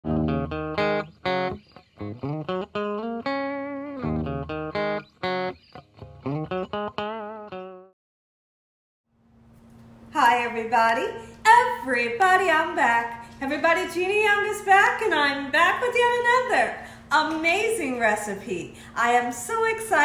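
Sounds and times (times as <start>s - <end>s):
guitar riff with bent notes: 0.0s - 7.9s.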